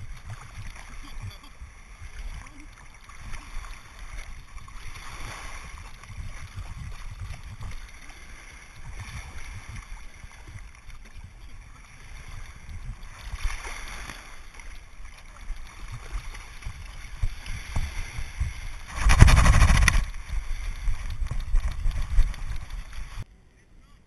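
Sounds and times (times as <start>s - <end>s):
seawater sloshing and splashing: 0.0s - 23.3s
low rumble of water: 0.0s - 23.4s
wind buffeting microphone: 3.2s - 8.0s, 8.8s - 14.0s, 15.6s - 23.3s.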